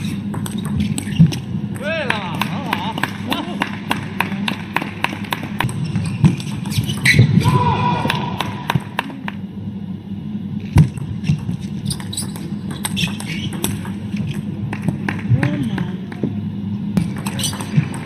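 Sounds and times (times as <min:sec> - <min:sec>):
table tennis ball clicking: 0:11.3 - 0:15.6, 0:17.0 - 0:18.0.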